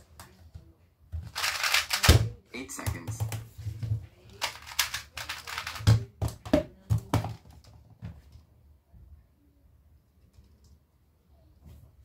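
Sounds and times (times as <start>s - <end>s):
puzzle cube turning clicks: 1.3s - 2.1s, 4.4s - 5.8s.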